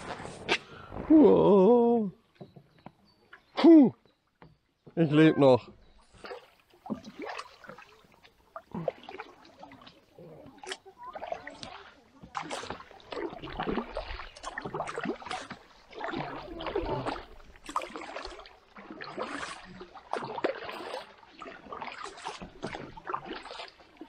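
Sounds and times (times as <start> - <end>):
water trickling off paddle: 2.2 - 24.0
paddle splashing in water: 5.1 - 24.0.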